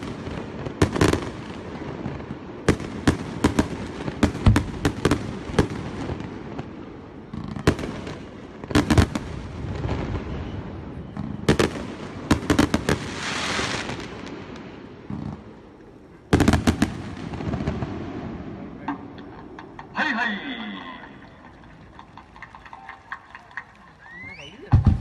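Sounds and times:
firework hissing: 12.9s - 14.7s
firework shells bursting: 18.8s - 25.0s.

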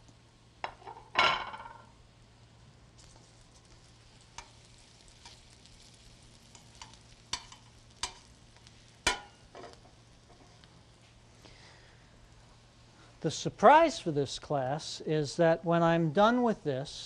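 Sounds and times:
vegetables sizzling in a pan: 1.8s - 15.0s
metal tongs clicking on pan: 4.4s - 4.6s, 6.5s - 8.4s, 9.0s - 9.8s.

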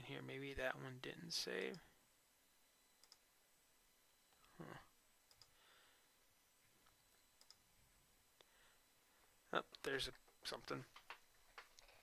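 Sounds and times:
faint vocal sound: 4.4s - 4.9s.

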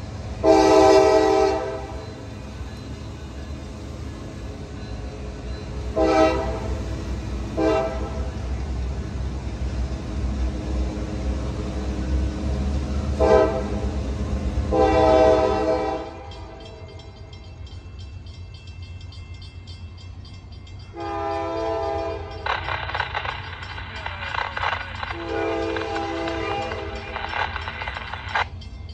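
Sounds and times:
low rumble of moving train: 0.0s - 28.9s
locomotive air horn blasts: 0.4s - 2.0s, 5.9s - 6.8s, 7.5s - 8.3s, 13.2s - 13.9s, 14.7s - 16.4s, 21.0s - 22.4s, 25.2s - 27.0s.

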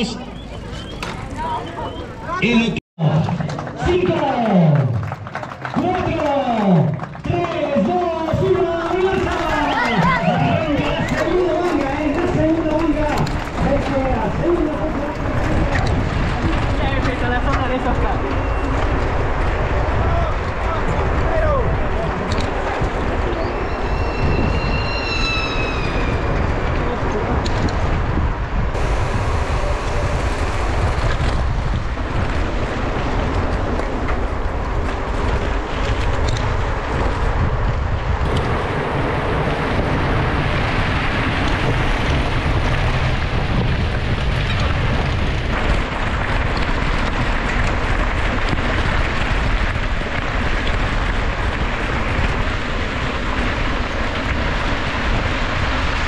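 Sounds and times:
wind noise on microphone: 7.2s - 56.0s.

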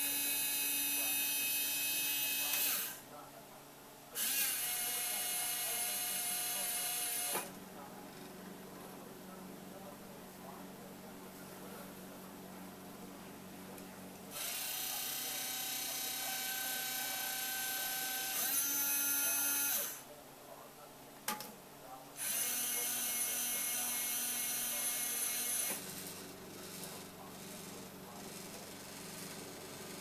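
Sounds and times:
small electric motors whining: 0.0s - 3.0s, 4.2s - 7.5s, 14.3s - 20.0s, 22.2s - 30.0s.

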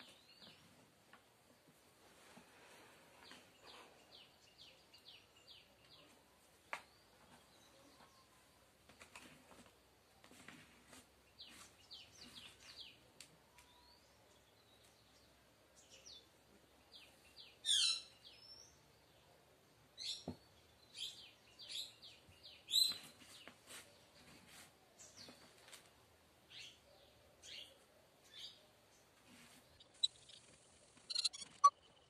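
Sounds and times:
birds chirping: 3.1s - 9.0s, 11.2s - 19.3s, 26.5s - 32.0s.

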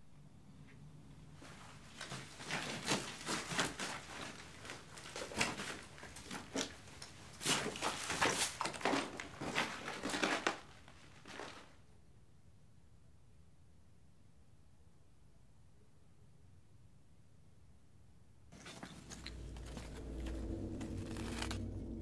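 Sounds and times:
footsteps crunching on rubble: 1.5s - 11.7s, 18.6s - 21.7s.

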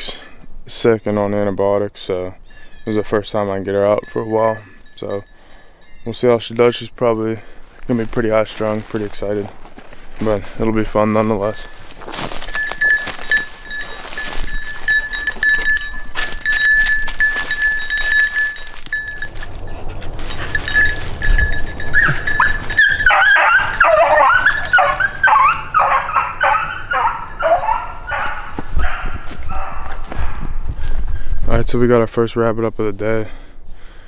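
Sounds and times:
brush crackling underfoot: 6.6s - 31.5s
beagle baying: 12.5s - 30.4s.

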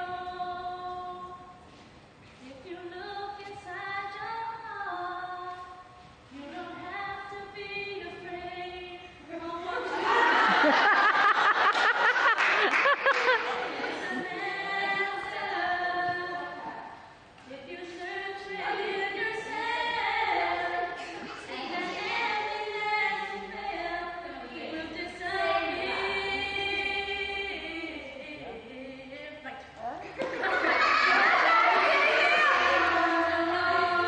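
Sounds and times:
group singing unaccompanied: 13.5s - 17.0s, 17.6s - 29.1s, 30.2s - 34.0s.

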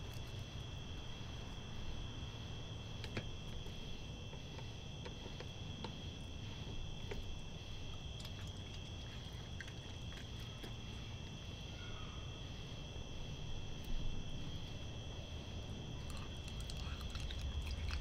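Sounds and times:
night insects trilling: 0.0s - 18.0s
animal crunching dry kibble: 6.9s - 10.8s, 16.0s - 18.0s.

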